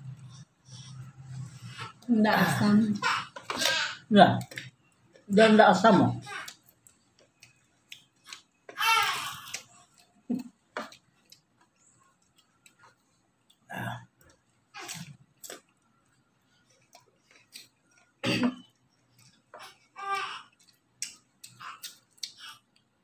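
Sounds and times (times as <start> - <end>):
chewing and mouth noises: 6.4 - 8.7, 9.3 - 23.0.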